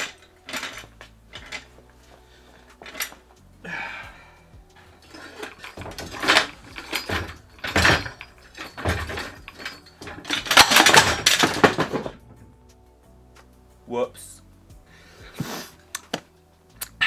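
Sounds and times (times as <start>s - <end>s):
metallic knocks and rattles: 0.0s - 1.8s, 4.8s - 12.5s.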